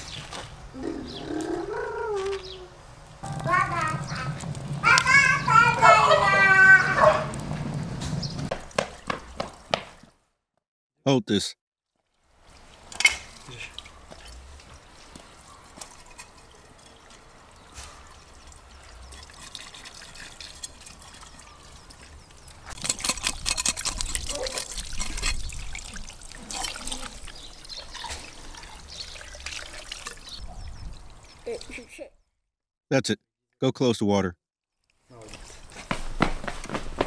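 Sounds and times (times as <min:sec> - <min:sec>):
water from hose splashing: 0:02.1 - 0:10.2, 0:11.9 - 0:31.9.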